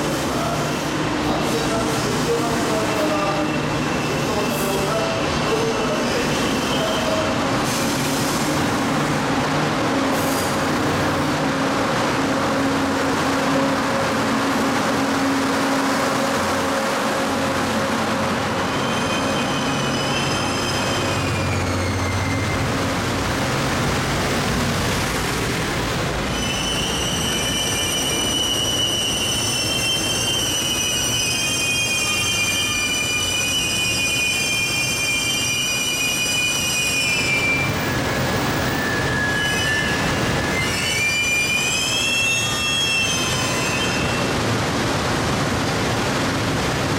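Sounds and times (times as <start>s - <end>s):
train cars rumbling past: 0.0s - 46.9s
metallic wheel squeal: 2.7s - 7.3s, 18.6s - 22.9s, 26.3s - 44.3s.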